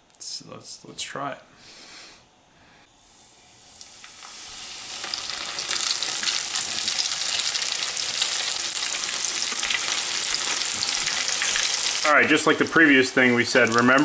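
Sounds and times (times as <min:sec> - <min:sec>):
fish frying in hot oil: 0:03.6 - 0:14.0.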